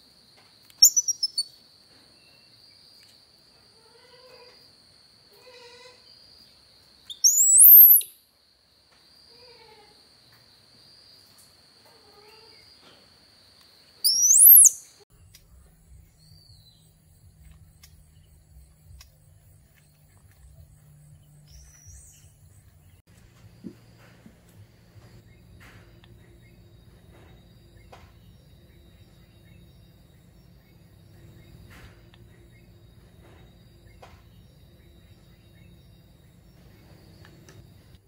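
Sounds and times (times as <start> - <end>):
crickets droning: 0.0 - 38.0
upward sweeping whistles: 7.1 - 8.1, 14.1 - 14.9
faint low hum: 13.9 - 38.0.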